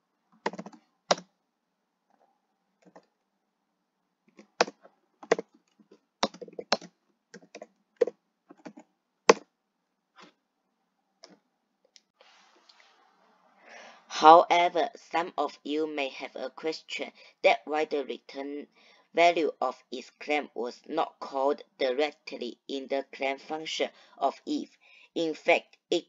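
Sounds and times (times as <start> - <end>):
computer keyboard typing: 0.4 - 1.3, 2.8 - 3.1, 4.3 - 5.6, 6.2 - 9.4.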